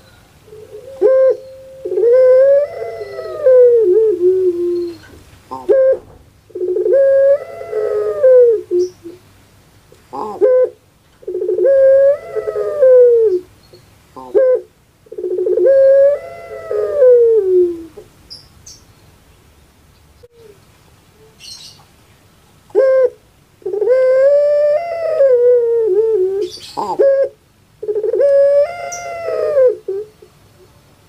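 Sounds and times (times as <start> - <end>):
dove cooing: 0.0 - 9.2, 10.1 - 13.5, 14.2 - 18.1, 20.3 - 21.8, 22.7 - 30.4.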